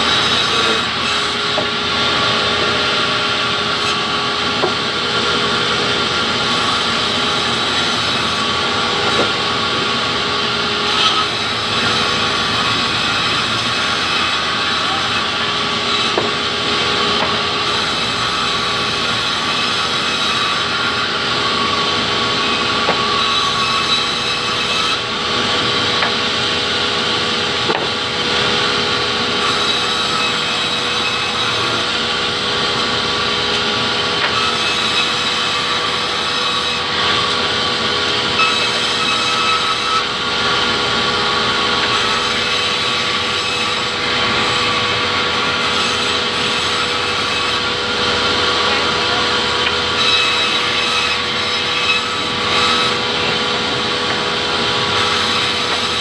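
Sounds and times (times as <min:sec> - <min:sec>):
band saw whining through wood: 0:00.0 - 0:56.0
wood knocks: 0:27.7 - 0:28.0.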